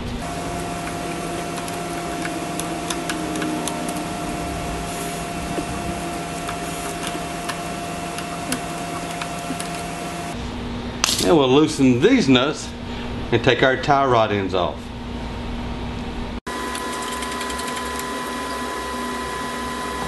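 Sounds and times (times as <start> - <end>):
thin held whine: 0.0 - 11.0, 16.5 - 20.0
workshop hum: 0.0 - 20.0.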